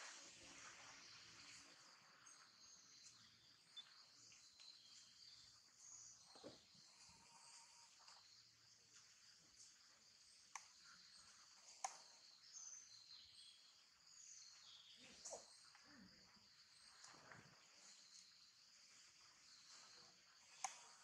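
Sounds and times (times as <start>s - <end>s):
soft clicks: 10.5s - 10.8s, 11.6s - 12.1s, 20.5s - 21.0s.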